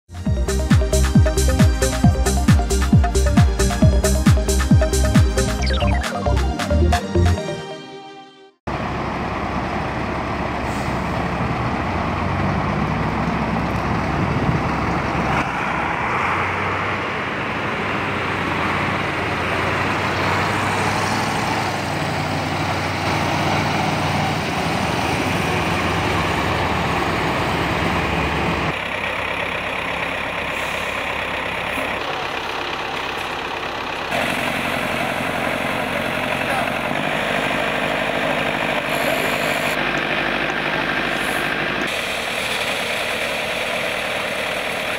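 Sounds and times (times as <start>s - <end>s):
diesel truck engine running: 0.1s - 7.6s, 8.7s - 44.9s.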